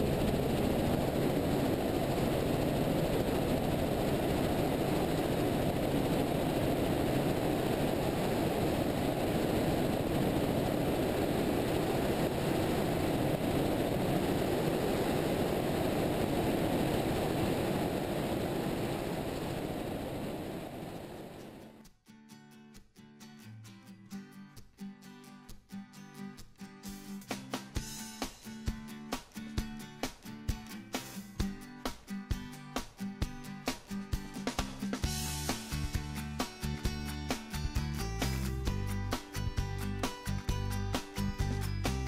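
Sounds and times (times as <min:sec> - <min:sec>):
helicopter rotor and engine: 0:00.0 - 0:21.7.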